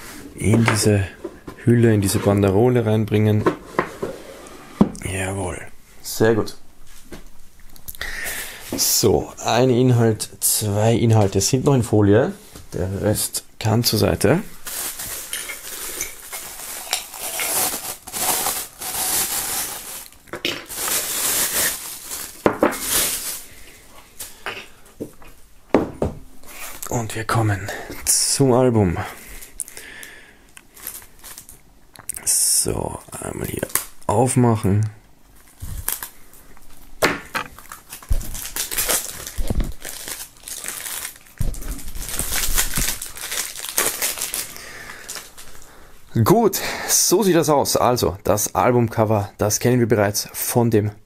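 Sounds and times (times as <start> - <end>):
bubble wrap crinkling: 13.9 - 24.4, 30.7 - 31.6, 33.4 - 34.2, 35.3 - 45.8.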